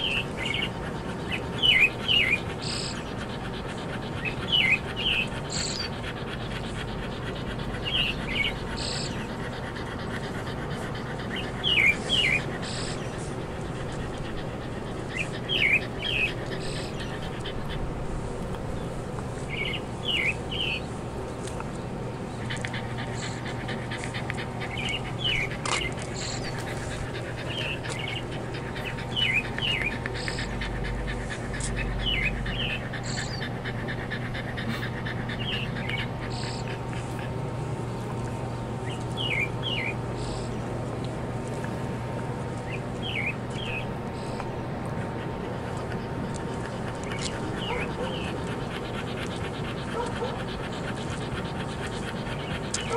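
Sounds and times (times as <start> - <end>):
bird chirping: 0.0 - 17.8, 18.7 - 33.5, 38.8 - 40.6, 42.6 - 44.4, 46.3 - 48.4
dog panting: 0.0 - 52.9
steady low hum: 0.0 - 52.9.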